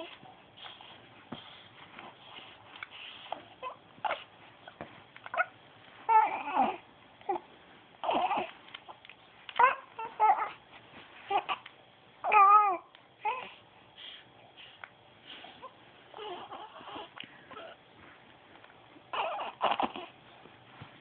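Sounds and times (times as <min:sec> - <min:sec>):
baby cooing and babbling: 0:06.1 - 0:08.6, 0:09.6 - 0:10.6, 0:11.3 - 0:13.6, 0:16.1 - 0:17.8, 0:19.1 - 0:20.2.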